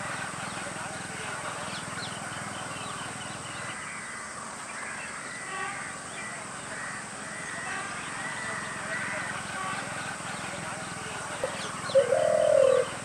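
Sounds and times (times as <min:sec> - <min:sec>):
small birds chirping: 0:00.0 - 0:04.1, 0:08.0 - 0:13.0
buzzy bird call: 0:11.3 - 0:13.0.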